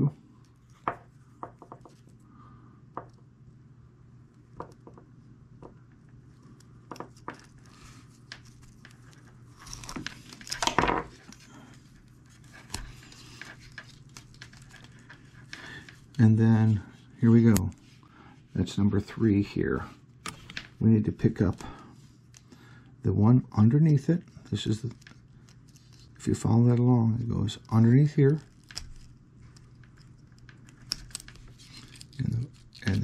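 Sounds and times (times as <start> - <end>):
steel cable clicks and scrapes: 28.3 - 33.0.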